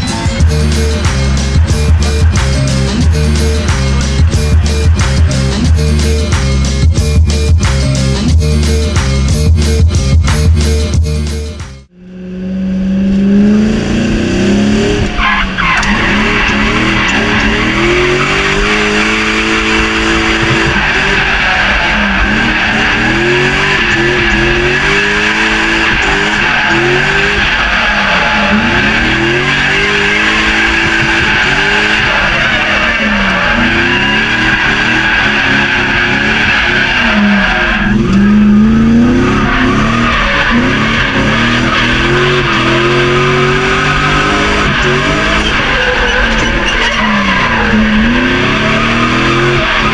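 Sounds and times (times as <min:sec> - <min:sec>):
car engine revving: 0:00.0 - 0:49.9
tyres squealing: 0:15.1 - 0:49.9.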